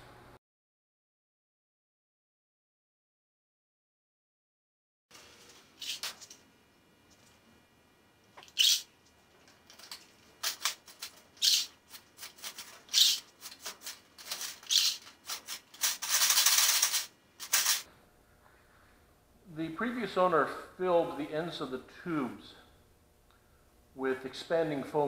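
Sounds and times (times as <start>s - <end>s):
hand tool rasping plastic: 10.4s - 17.8s.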